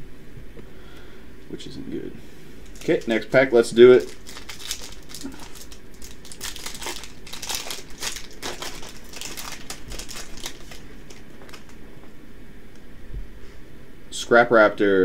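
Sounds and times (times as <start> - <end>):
foil wrapper crinkling: 2.6 - 12.1.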